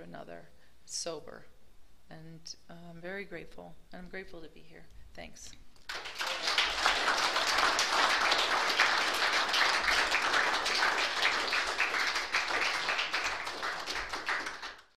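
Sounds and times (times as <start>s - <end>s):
audience applauding: 5.9s - 15.0s.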